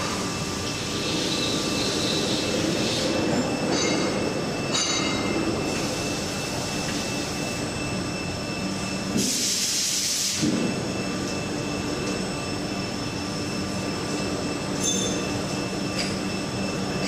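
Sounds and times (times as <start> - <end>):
loud hiss: 9.2 - 10.5.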